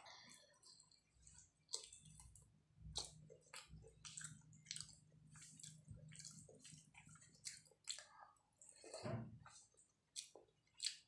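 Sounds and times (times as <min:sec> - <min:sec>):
fingers squishing through rice: 0:00.1 - 0:08.7
wet chewing and lip smacks: 0:00.6 - 0:11.0.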